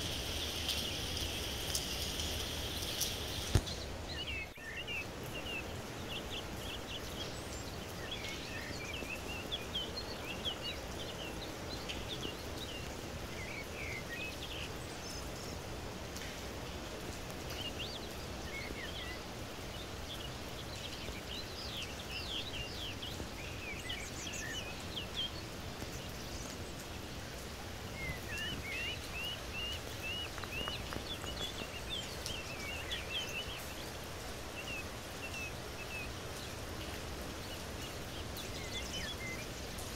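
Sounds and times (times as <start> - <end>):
small birds chirping: 0.0 - 39.9
steady rain hiss: 0.0 - 39.9.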